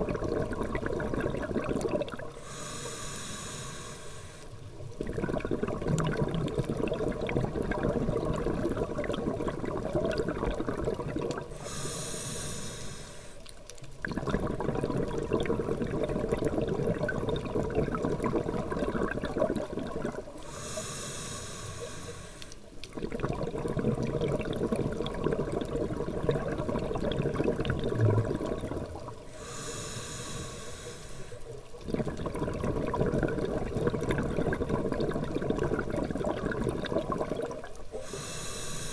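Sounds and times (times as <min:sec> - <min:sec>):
bubbling underwater exhalations: 0:00.0 - 0:02.7, 0:04.9 - 0:12.1, 0:14.0 - 0:21.0, 0:22.8 - 0:30.4, 0:31.5 - 0:38.9
hissing regulator inhalation: 0:02.4 - 0:04.6, 0:11.5 - 0:13.5, 0:20.4 - 0:22.7, 0:29.2 - 0:31.6, 0:38.0 - 0:38.9.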